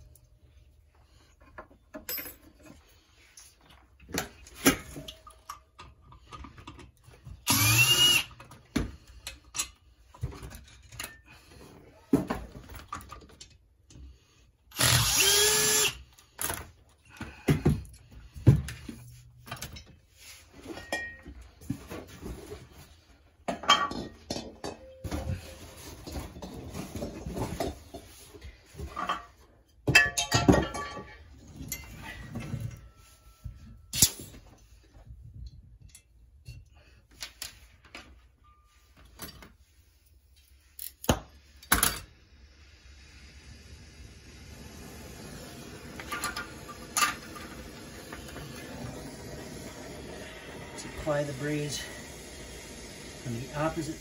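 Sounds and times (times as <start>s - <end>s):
power drill whirring: 7.4s - 8.4s, 14.7s - 16.4s
tools and parts clicking: 40.4s - 42.1s.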